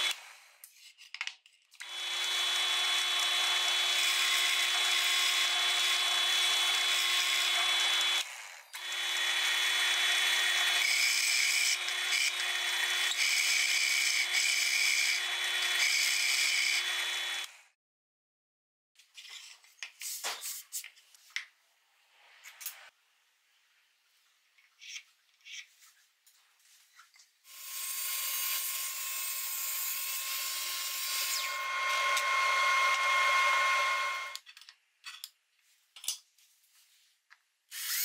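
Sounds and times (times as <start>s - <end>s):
drill press boring into plywood: 1.8s - 17.6s.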